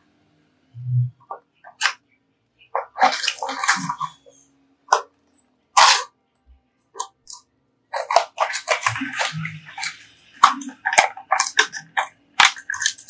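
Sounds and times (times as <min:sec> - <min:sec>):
plastic packaging crinkling: 0:02.8 - 0:04.2, 0:07.3 - 0:13.0.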